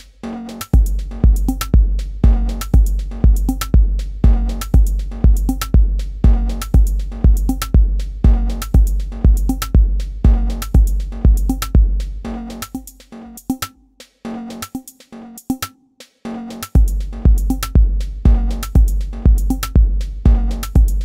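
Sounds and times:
hi-hat ticks: 0.0 - 21.0
pitched percussion: 0.6 - 15.8, 16.5 - 21.0
deep kick drum: 0.7 - 13.0, 16.8 - 21.0.

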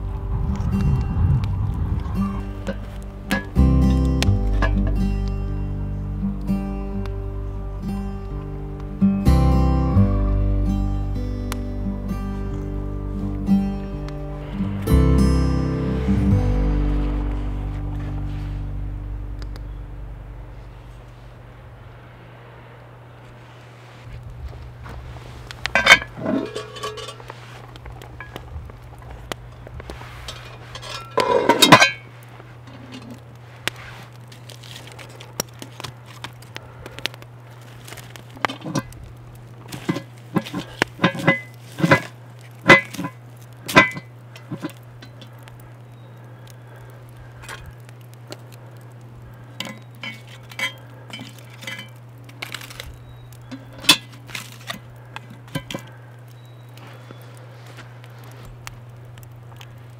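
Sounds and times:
cast iron lid scraping metal: 25.7 - 27.6, 30.2 - 33.2, 39.7 - 44.8, 49.6 - 52.8
metal clinks and knocks: 25.8 - 27.2.

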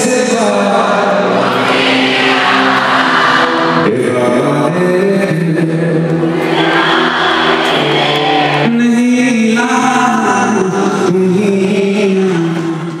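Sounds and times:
man singing into microphone: 0.0 - 1.6, 3.4 - 6.4, 8.4 - 13.0.

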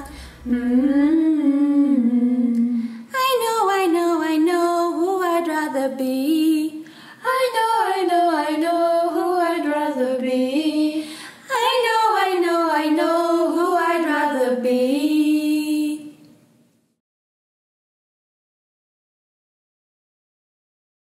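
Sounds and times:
breaths: 0.0 - 0.5, 2.7 - 3.1, 6.8 - 7.2, 11.0 - 11.5
woman singing unaccompanied: 0.0 - 16.2.

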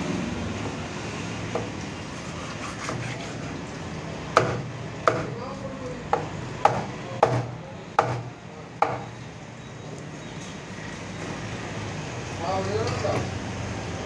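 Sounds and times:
knife chopping into wooden block: 4.4 - 5.4, 6.1 - 9.0.

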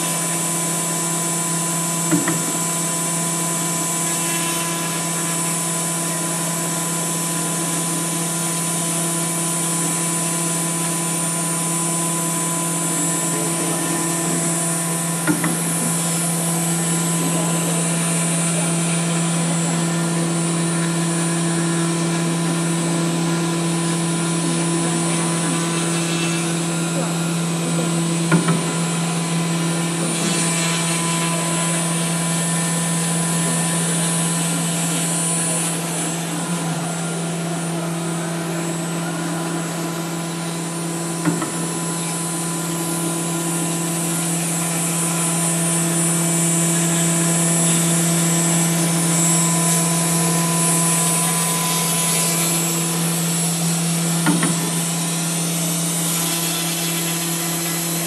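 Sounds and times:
router spindle humming: 0.0 - 58.0.

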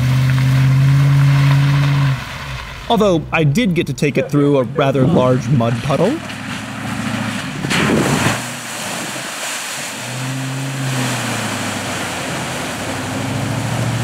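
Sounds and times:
truck engine pulling: 0.0 - 14.0
muddy water splashing: 5.0 - 14.0.

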